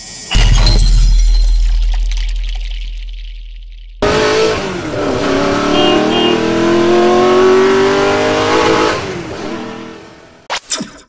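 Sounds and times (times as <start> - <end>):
car engine revving up: 4.0 - 10.4.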